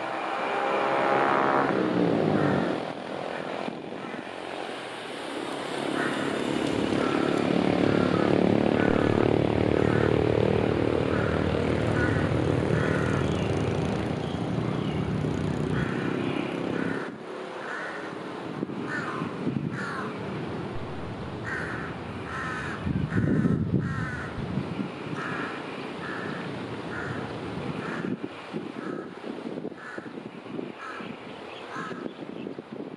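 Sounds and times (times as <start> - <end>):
diesel locomotive engine rumbling: 6.8 - 16.1.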